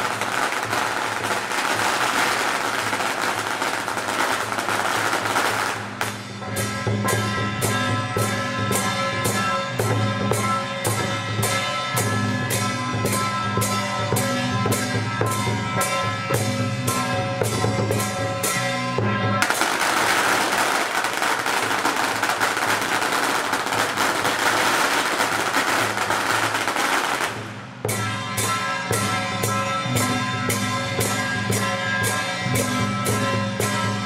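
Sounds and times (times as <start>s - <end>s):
firecrackers crackling: 0.0s - 6.4s, 19.4s - 28.0s
music with steady drumbeat: 0.0s - 34.0s.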